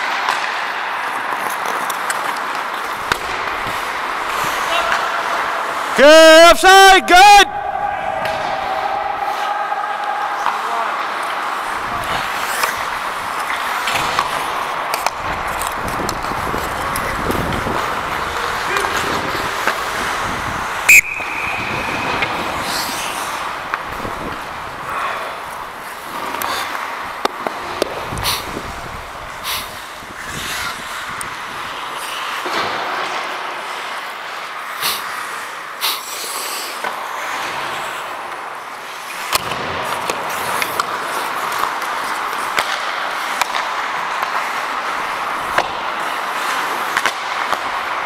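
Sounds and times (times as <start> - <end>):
hockey sticks and puck clacking: 0.0 - 48.0
skate blades hissing on ice: 11.6 - 14.6, 21.5 - 32.5, 33.6 - 47.9.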